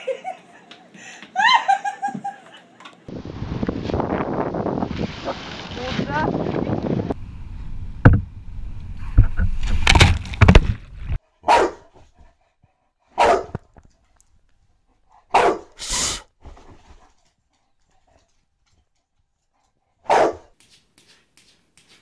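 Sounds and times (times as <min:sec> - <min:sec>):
wind buffeting microphone: 0:03.1 - 0:11.2
loud thumps: 0:07.8 - 0:11.2
dog barking: 0:11.4 - 0:11.9, 0:13.2 - 0:13.5, 0:15.3 - 0:15.8, 0:20.0 - 0:20.5.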